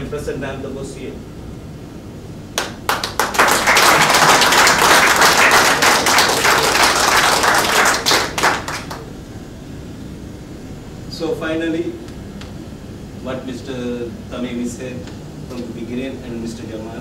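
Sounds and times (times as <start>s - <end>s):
audience applauding: 2.6s - 9.1s.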